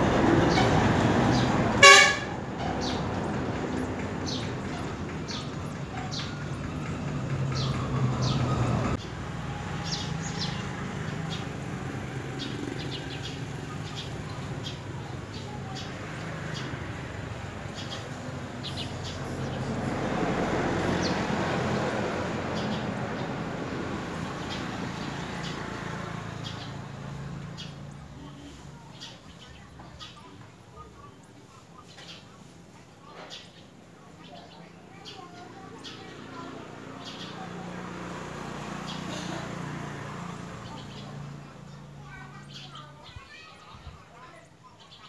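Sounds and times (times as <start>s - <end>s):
low traffic rumble: 0.0s - 45.0s
vehicle horn toot: 1.8s - 2.4s.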